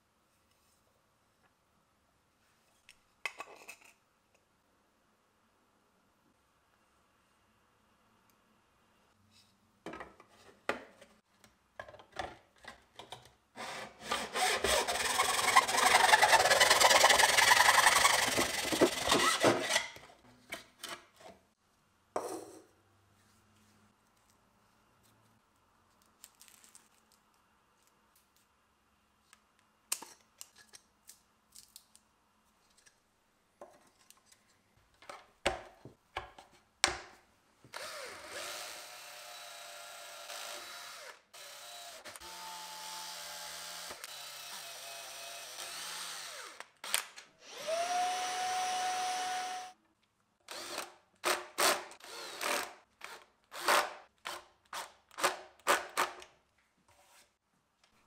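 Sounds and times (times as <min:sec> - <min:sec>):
drill driving screws in bursts: 0:13.6 - 0:19.8, 0:37.8 - 0:49.7, 0:50.5 - 0:54.0
cordless drill boring into wood: 0:13.6 - 0:19.9, 0:37.7 - 0:49.8, 0:50.5 - 0:53.9.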